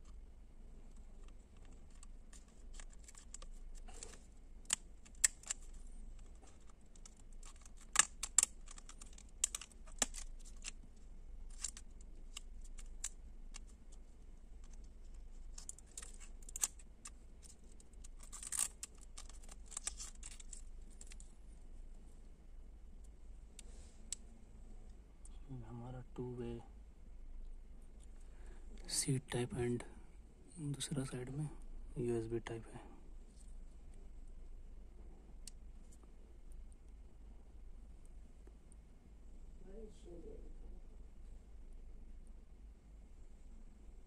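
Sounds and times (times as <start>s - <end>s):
plastic crinkling: 1.2s - 10.8s, 11.5s - 21.2s.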